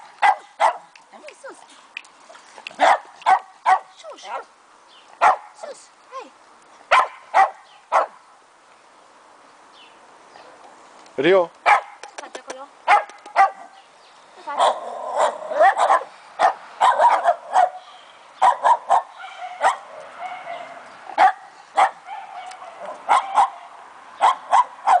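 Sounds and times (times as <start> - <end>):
dogs barking and yipping: 0.0 - 0.9, 2.5 - 4.4, 5.2 - 5.6, 6.9 - 8.2, 11.6 - 12.0, 12.9 - 13.8, 14.5 - 25.0.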